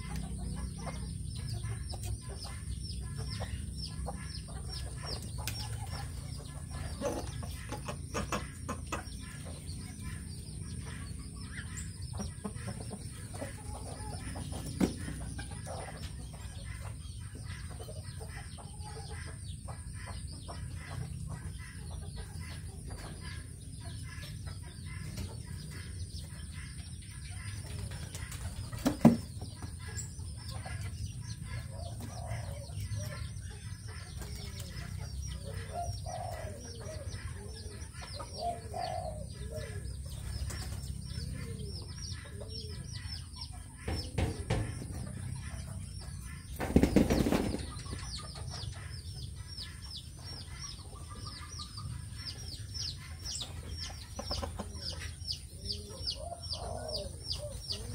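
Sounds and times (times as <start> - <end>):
chickens clucking softly: 0.0 - 57.9
small birds chirping: 0.0 - 57.9
wings flapping: 46.6 - 48.0.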